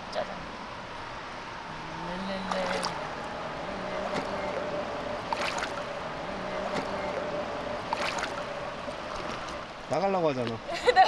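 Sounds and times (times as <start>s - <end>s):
stream water sloshing: 1.8s - 11.0s
sharp water splashes: 2.3s - 10.6s.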